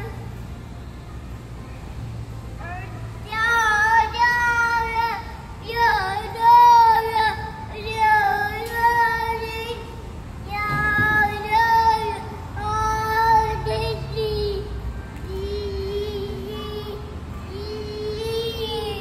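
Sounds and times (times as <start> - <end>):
high voice singing a tune: 10.5 - 19.0.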